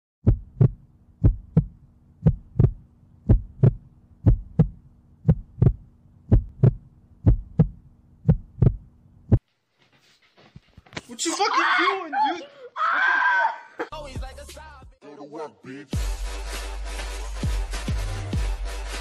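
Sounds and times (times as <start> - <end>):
heartbeat thumps: 0.2 - 9.4.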